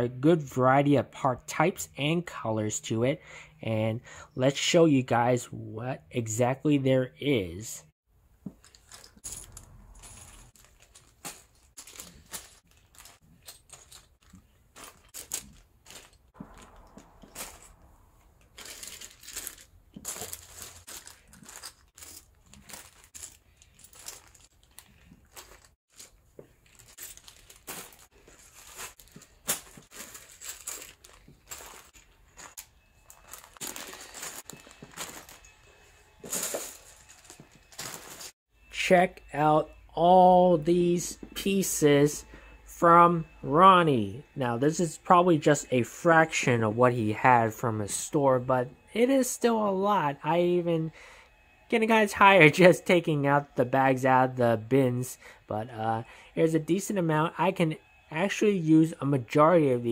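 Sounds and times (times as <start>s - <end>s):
plastic bags crinkling: 8.5s - 38.4s.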